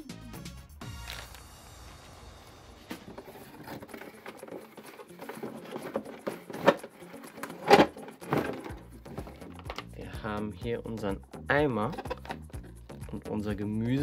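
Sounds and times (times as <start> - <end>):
taps and rustles of packaging: 2.9 - 9.9.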